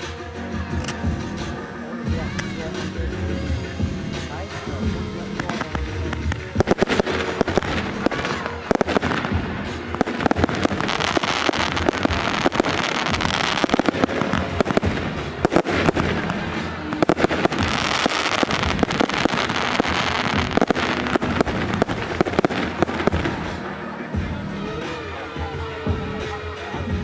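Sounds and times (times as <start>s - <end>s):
music: 0.0s - 27.0s
hiss of crackling fireworks: 2.1s - 24.0s
fireworks cracks and pops: 5.4s - 23.6s.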